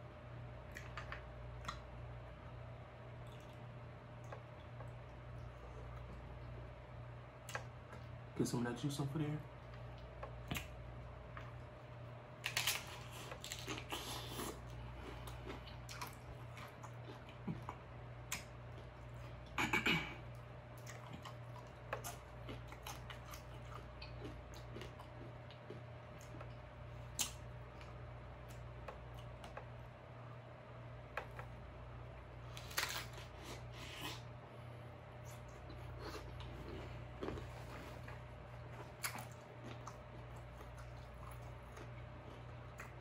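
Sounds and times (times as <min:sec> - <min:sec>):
steady low hum: 0:00.0 - 0:43.0
wet chewing and lip smacking: 0:03.2 - 0:06.1
crunching bites: 0:12.4 - 0:18.8.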